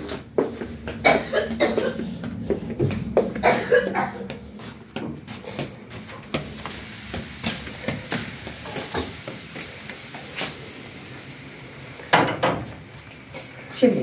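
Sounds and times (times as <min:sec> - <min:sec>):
pancakes sizzling in a pan: 0:06.4 - 0:13.0
pan and utensils clicking: 0:07.4 - 0:09.4.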